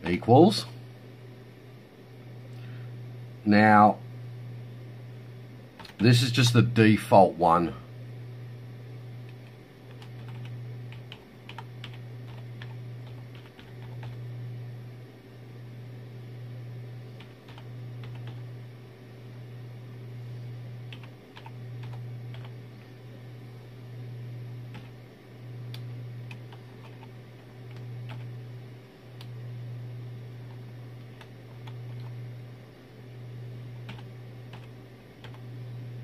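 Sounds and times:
steady low hum: 0.0s - 36.0s
computer keyboard keystrokes: 5.8s - 6.0s, 9.3s - 14.2s, 17.2s - 18.4s, 20.9s - 22.6s, 24.7s - 25.0s, 26.3s - 28.3s, 30.5s - 32.2s, 33.8s - 35.4s.

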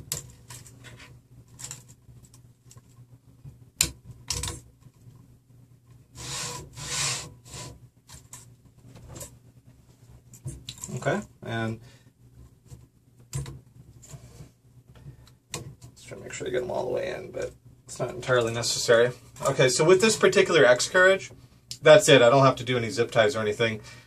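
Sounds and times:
bearings clicking and knocking: 3.8s - 5.0s
rubbing scrapes: 6.1s - 7.8s.

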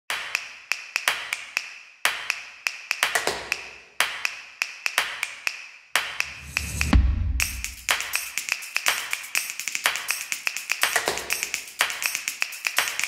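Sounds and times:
percussive background music: 0.1s - 13.0s
low swell: 6.3s - 8.0s.

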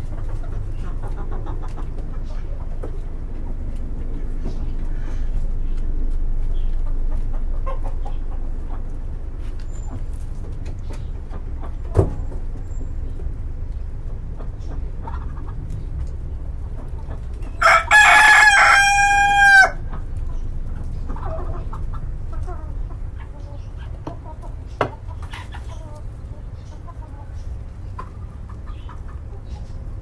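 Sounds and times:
chickens clucking: 0.0s - 30.0s
rooster crowing: 17.5s - 19.9s.

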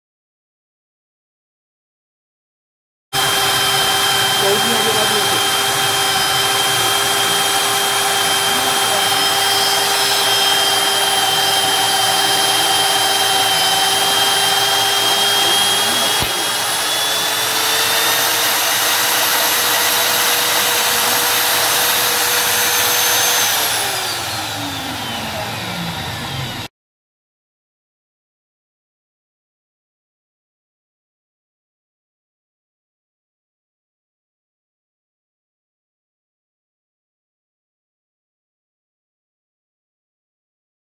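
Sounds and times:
magnetic drill whining: 3.2s - 26.7s.

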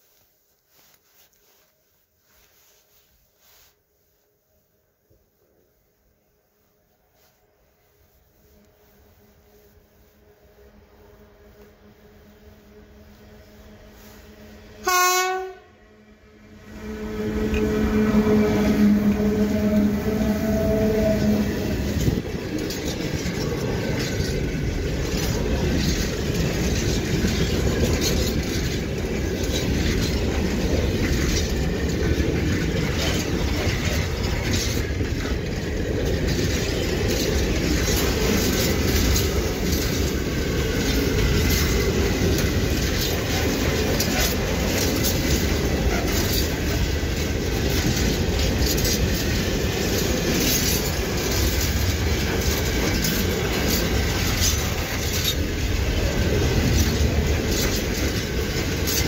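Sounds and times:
freight train rumble: 0.0s - 59.0s
locomotive horn: 11.5s - 15.9s, 16.6s - 22.1s
wheels clacking over rails: 16.8s - 59.0s.

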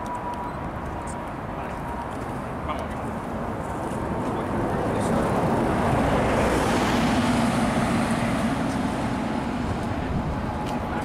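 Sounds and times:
vehicle passing by: 2.7s - 11.0s.

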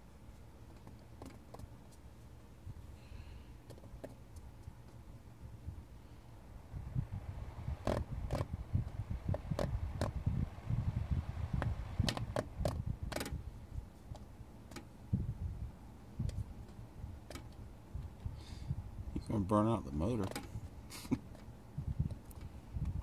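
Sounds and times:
low rumble: 5.5s - 13.9s
fan blades clicking: 7.0s - 15.0s, 19.9s - 20.6s.

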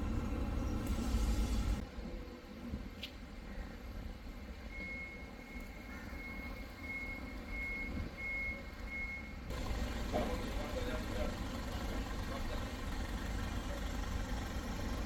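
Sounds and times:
car engines rumbling: 0.0s - 1.8s, 6.8s - 15.0s
reversing beeper: 4.6s - 9.5s.

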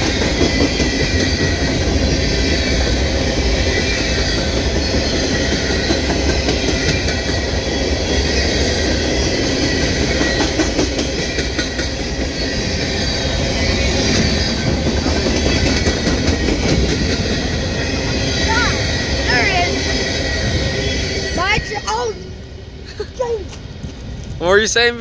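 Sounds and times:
train wheels rumbling on rail: 0.0s - 25.0s
wheels clicking over rail joints: 3.6s - 12.8s, 13.9s - 18.2s.

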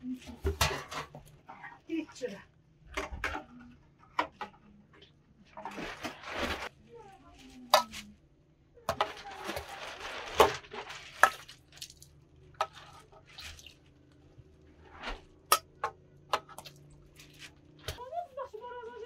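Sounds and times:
stew sloshing: 5.6s - 6.7s, 9.0s - 14.1s.

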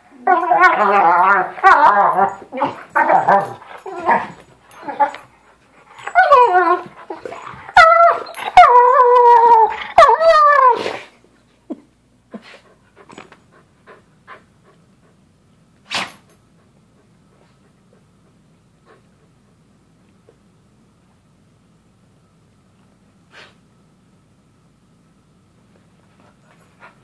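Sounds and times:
dog whining: 0.1s - 5.3s, 5.9s - 11.1s.

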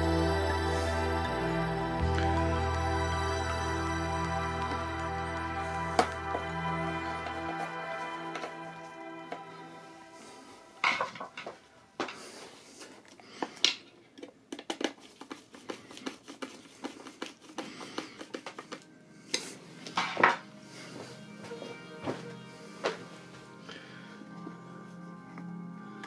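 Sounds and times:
background music: 0.0s - 12.4s, 17.6s - 26.0s.

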